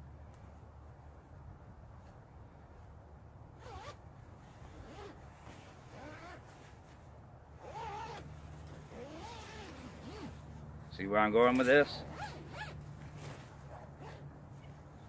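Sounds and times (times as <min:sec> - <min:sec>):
zipper being zipped: 0:03.6 - 0:04.0, 0:04.7 - 0:05.2, 0:05.8 - 0:06.4, 0:07.6 - 0:10.4, 0:12.0 - 0:14.2.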